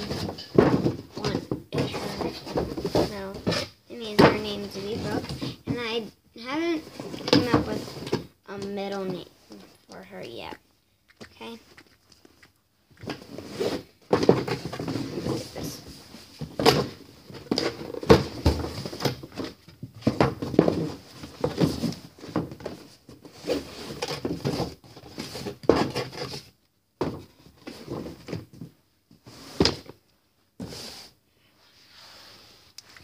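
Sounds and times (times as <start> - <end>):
cardboard box and paper bag rustling: 0.0 - 5.8.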